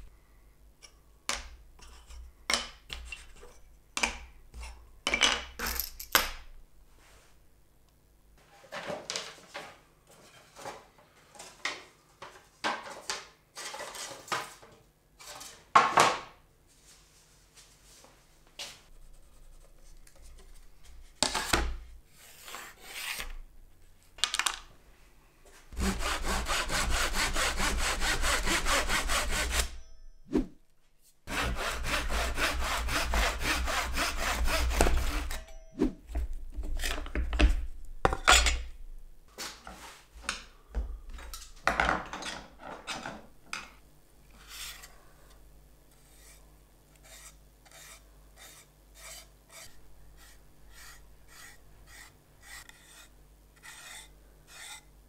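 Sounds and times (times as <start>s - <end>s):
hand saw cutting wood: 22.2s - 23.4s, 25.8s - 29.8s, 31.3s - 35.6s, 47.0s - 54.9s.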